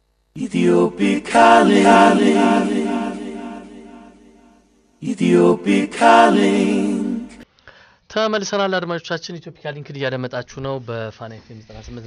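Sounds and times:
a cappella vocal jingle: 0:00.4 - 0:04.4, 0:05.0 - 0:07.5.

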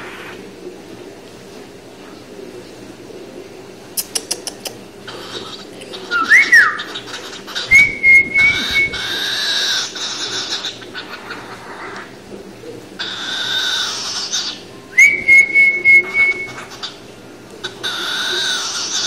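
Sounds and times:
bird clicks: 0:04.0 - 0:04.8
cockatiel whistling: 0:06.1 - 0:07.0, 0:07.6 - 0:10.7, 0:13.0 - 0:17.0.

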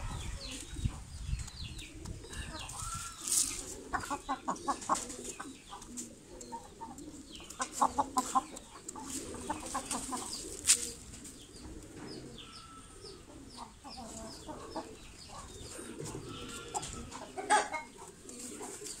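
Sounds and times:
chickens clucking: 0:00.0 - 0:19.0.

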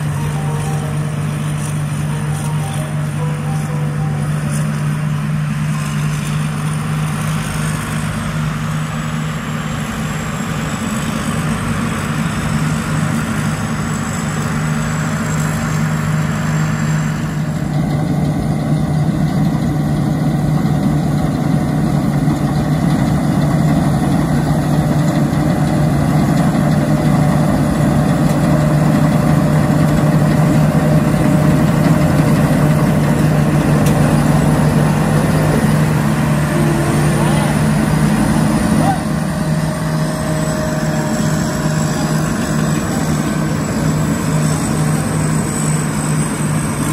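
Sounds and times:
combine harvester engine drone: 0:00.0 - 0:46.9.

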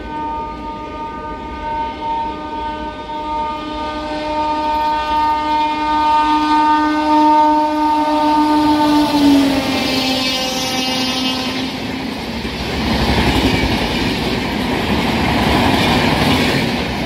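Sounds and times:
train horn long blast: 0:00.0 - 0:12.2
train rumble: 0:00.0 - 0:17.0.

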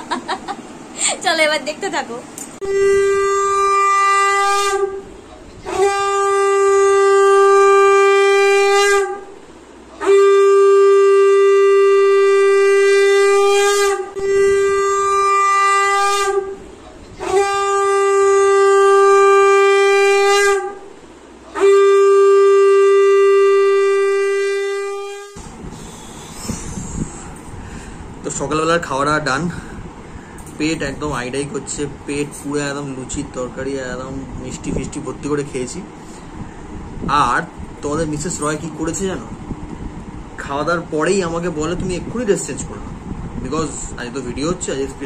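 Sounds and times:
conch shell blasts: 0:02.6 - 0:09.4, 0:10.0 - 0:16.6, 0:17.2 - 0:20.9, 0:21.5 - 0:27.8.

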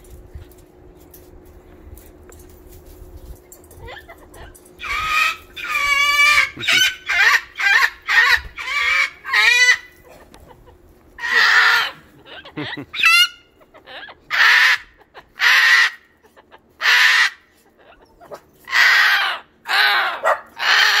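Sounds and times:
cockatoo screeching: 0:04.8 - 0:10.0, 0:11.2 - 0:16.1, 0:16.8 - 0:21.0.

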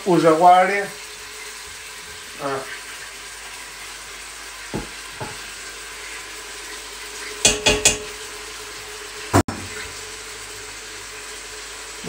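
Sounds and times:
frying sizzle: 0:00.0 - 0:12.0
clatters on metal pot: 0:07.5 - 0:08.1
metal pot ringing: 0:07.5 - 0:08.1.

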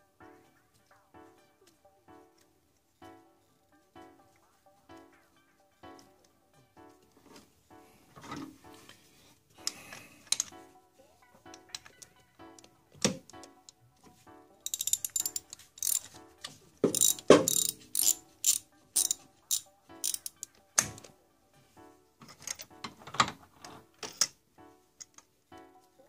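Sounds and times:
socket ratchet clicking: 0:14.7 - 0:16.1, 0:16.9 - 0:20.5.

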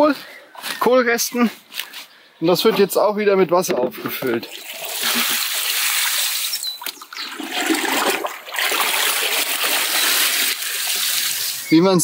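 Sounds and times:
water splashing into a tub: 0:04.4 - 0:11.7.

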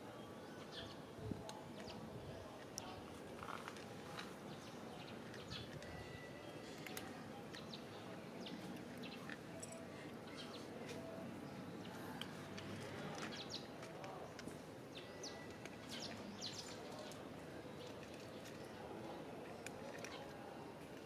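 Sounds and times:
kittens crunching dry kibble: 0:02.6 - 0:05.9, 0:15.5 - 0:21.0
small birds chirping: 0:14.9 - 0:20.4.

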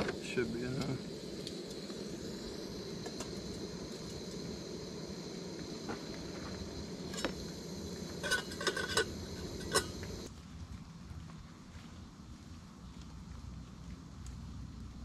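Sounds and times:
camp stove hissing: 0:00.0 - 0:10.3
light metal clinks: 0:08.2 - 0:10.3.

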